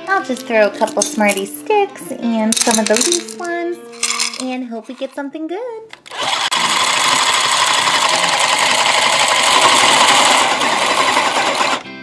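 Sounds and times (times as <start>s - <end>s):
toy mixer rattling whir: 2.6s - 5.1s, 6.0s - 11.8s.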